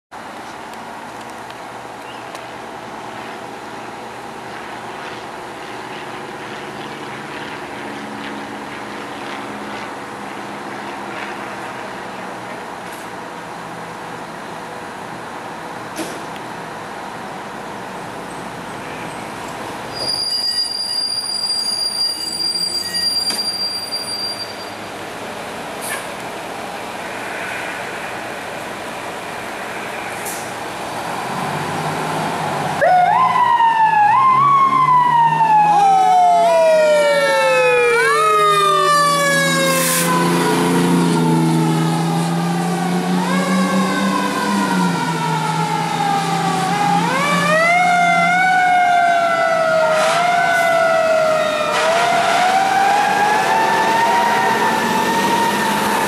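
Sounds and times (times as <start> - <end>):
rushing traffic-like noise: 0.1 - 56.0
high-pitched squeal: 18.8 - 24.9.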